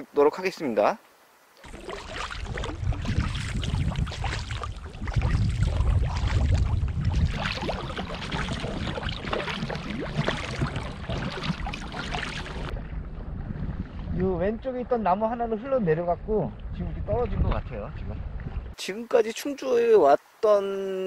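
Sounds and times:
paddle strokes: 1.6s - 13.0s
water splashing against hull: 1.6s - 14.2s
low rumble: 1.7s - 18.7s.

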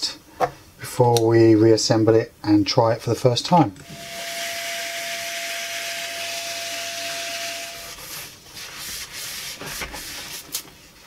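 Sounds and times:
vacuum cleaner hose sucking: 3.8s - 10.7s
cloth wiping plastic: 7.4s - 11.0s.

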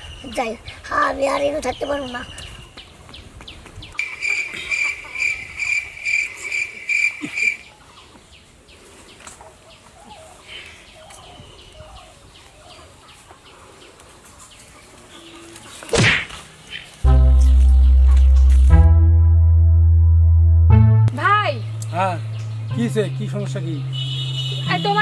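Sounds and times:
birds chirping: 0.0s - 18.7s, 21.1s - 25.0s
hens clucking: 4.0s - 8.2s
loud short swish: 15.9s - 16.4s.

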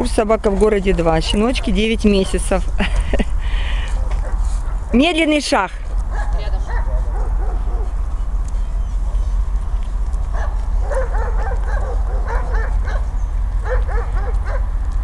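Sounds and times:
steady low rumble: 0.0s - 15.0s
dog whining and yipping: 8.2s - 9.4s.

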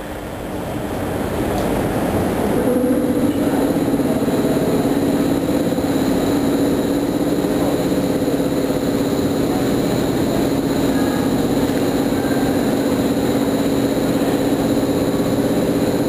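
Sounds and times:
electric locomotive humming: 0.0s - 16.0s.

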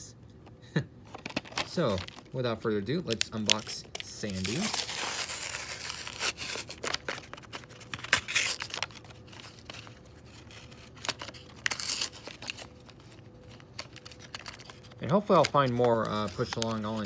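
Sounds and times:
plastic tray crinkling: 1.1s - 2.4s, 3.1s - 17.0s
cardboard tearing: 3.4s - 13.0s.

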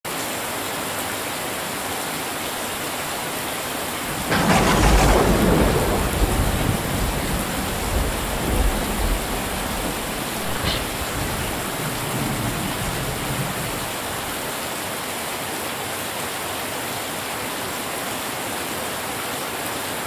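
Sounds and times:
heavy rain on metal roofs: 0.1s - 20.0s
thunder rumbling: 2.6s - 14.6s.

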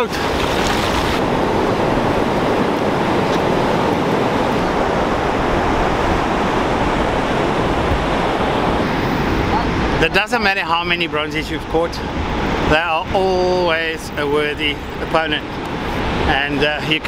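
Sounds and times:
breaking surf: 0.0s - 17.0s
wind: 0.0s - 17.0s.

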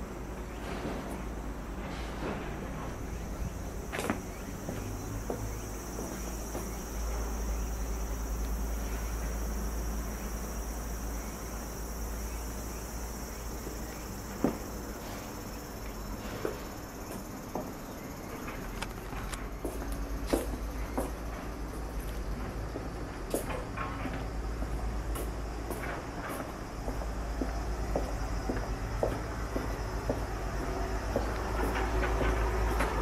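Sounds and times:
insects chirring: 0.0s - 33.0s.

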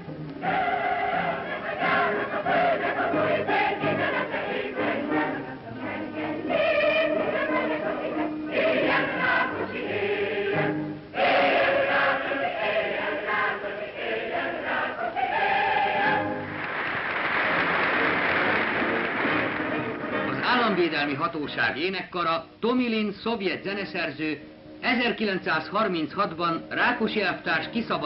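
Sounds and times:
mixed choir singing: 0.4s - 20.4s
audience applause: 16.2s - 21.2s.

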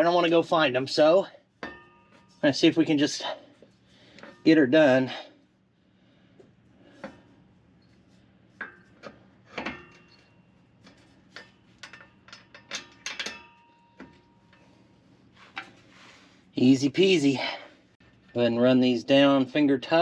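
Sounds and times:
ringing metal knocks: 1.6s - 2.4s
metal clinks and scrapes: 1.6s - 4.6s, 7.8s - 16.3s.

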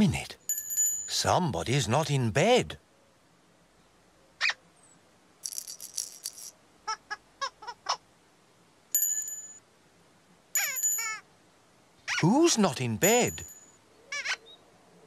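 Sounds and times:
high tinkling: 0.5s - 1.4s, 5.4s - 6.5s, 8.9s - 9.6s, 10.6s - 11.2s, 12.5s - 13.8s
bell-like ding: 9.0s - 9.6s
cartoon squeak: 10.6s - 11.2s, 12.1s - 12.3s, 14.1s - 14.4s.

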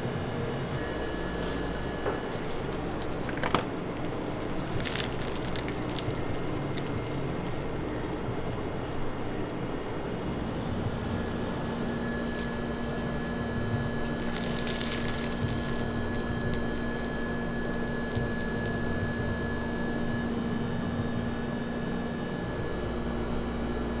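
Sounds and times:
faint high whine: 0.0s - 24.0s
machinery humming: 0.0s - 24.0s
pastry crust crackling: 2.3s - 9.5s, 11.3s - 20.2s.

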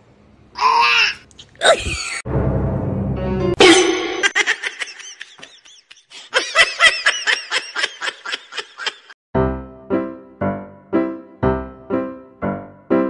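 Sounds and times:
person laughing high-pitched: 1.5s - 2.2s, 3.6s - 9.2s.

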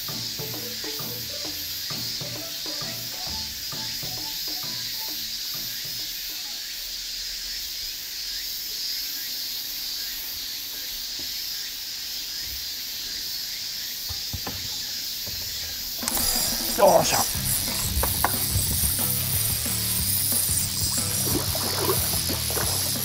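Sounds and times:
music with plucked notes: 0.0s - 5.2s, 16.1s - 23.0s
insects buzzing: 0.0s - 23.0s.

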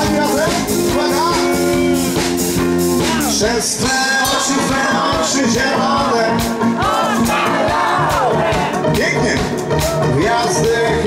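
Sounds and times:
man singing into microphone: 0.0s - 2.2s, 3.1s - 7.5s, 10.1s - 11.0s
electric bass: 0.0s - 11.0s
steady beat: 0.0s - 11.0s.

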